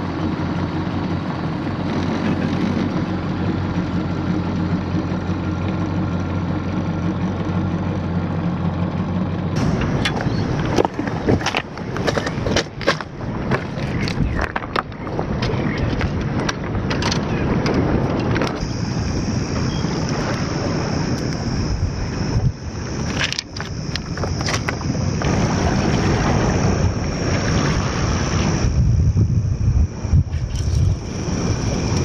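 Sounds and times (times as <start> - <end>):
wind buffeting microphone: 9.6 - 32.0.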